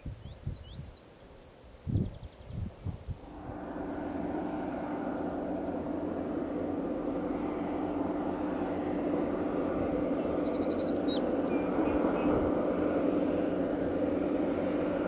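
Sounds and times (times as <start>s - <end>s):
diesel engine droning: 3.2s - 15.0s.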